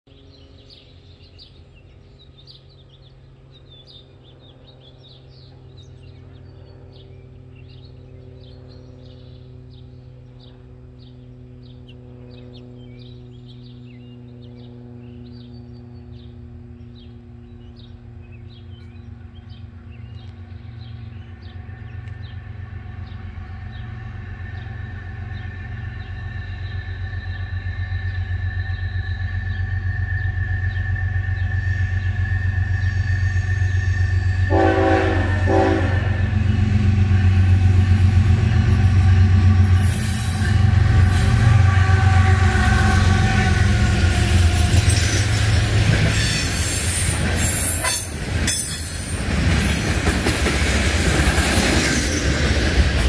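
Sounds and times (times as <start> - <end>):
diesel locomotive rumble: 0.1 - 53.0
steady high ringing tone: 21.3 - 35.5.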